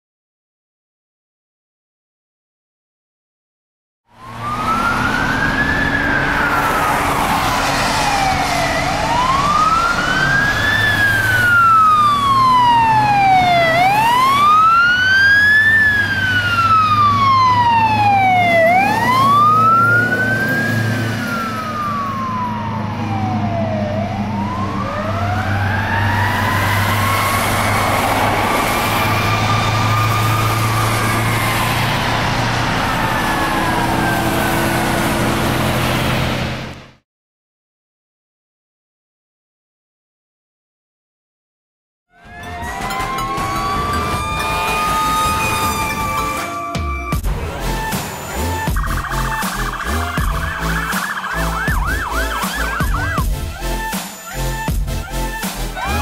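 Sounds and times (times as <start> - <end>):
fire truck siren wailing: 4.1 - 36.4, 42.1 - 56.0.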